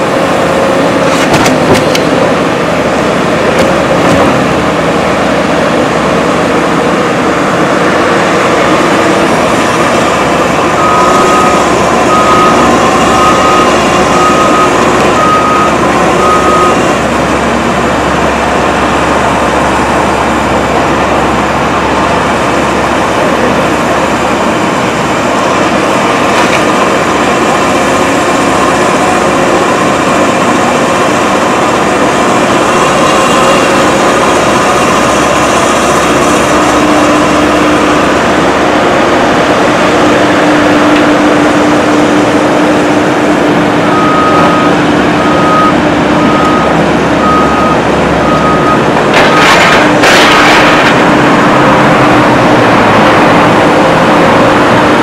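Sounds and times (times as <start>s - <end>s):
excavator diesel engine running: 0.0s - 55.0s
reversing alarm beeping: 10.1s - 17.2s, 43.8s - 49.7s.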